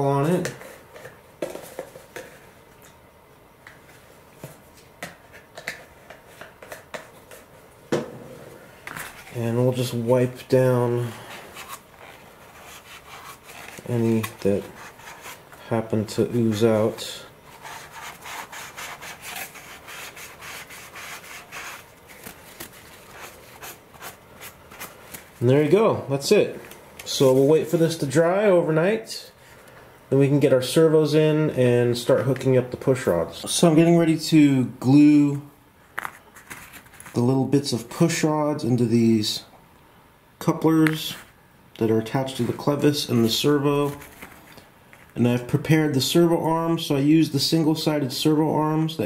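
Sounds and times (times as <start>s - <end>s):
paper towel wiping: 9.0s - 25.3s.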